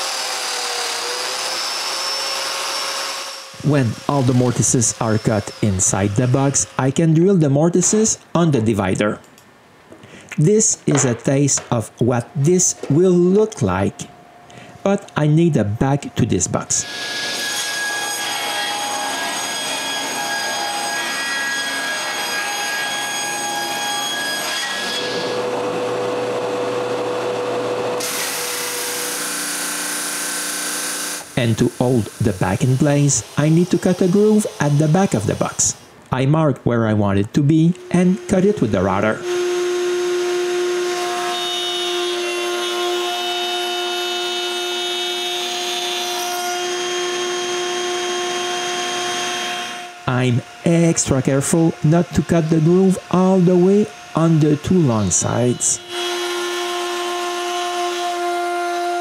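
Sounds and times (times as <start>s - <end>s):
drum sander humming: 0.0s - 6.8s, 37.8s - 45.8s
table saw cutting board: 0.0s - 7.9s, 10.9s - 13.8s, 16.7s - 35.9s, 37.7s - 59.0s.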